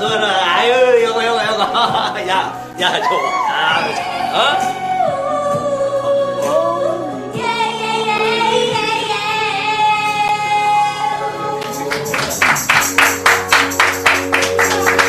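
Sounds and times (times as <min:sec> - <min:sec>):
woman singing pop song: 0:03.0 - 0:12.0.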